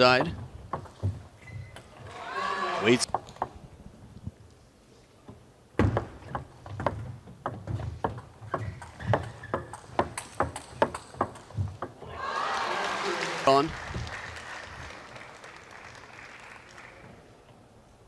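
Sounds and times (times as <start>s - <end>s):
table tennis ball hits and bounces: 5.8s - 12.0s.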